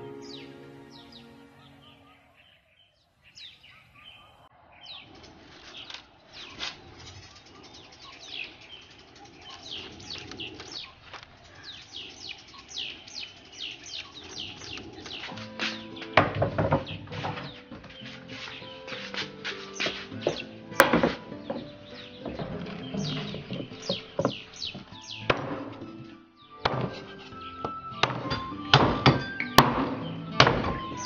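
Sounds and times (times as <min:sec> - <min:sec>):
music: 0:00.0 - 0:02.4, 0:14.8 - 0:31.0
small birds chirping: 0:00.0 - 0:31.0.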